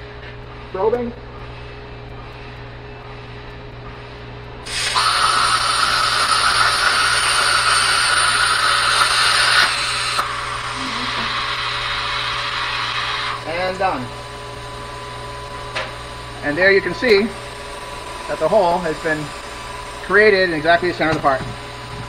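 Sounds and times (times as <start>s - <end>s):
plasma cutter arc hissing: 4.6s - 13.9s
air hissing through torch: 4.6s - 14.0s.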